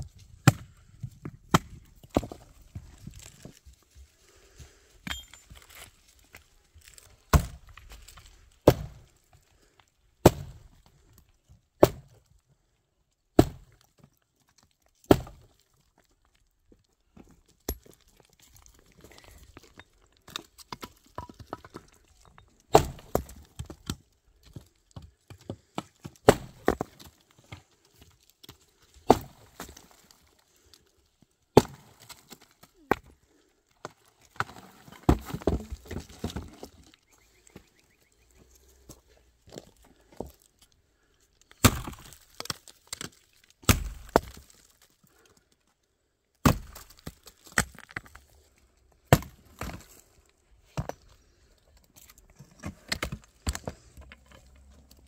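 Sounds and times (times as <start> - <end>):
axe chopping tree stump: 0.4 - 0.8, 1.4 - 2.4, 7.3 - 7.7, 8.6 - 9.0, 10.2 - 10.6, 11.8 - 12.2, 13.4 - 13.8, 15.1 - 15.5, 22.7 - 24.0, 25.8 - 26.9, 29.0 - 29.8, 31.6 - 32.0, 41.6 - 44.4, 46.4 - 47.8, 49.1 - 49.8
wood cracking: 38.8 - 45.5.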